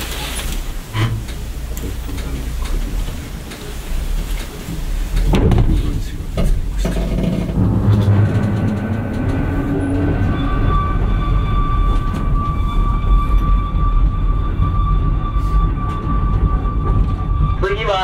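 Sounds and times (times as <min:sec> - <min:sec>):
train wheels rumbling on rail: 0:00.0 - 0:18.0
high whine: 0:07.3 - 0:18.0.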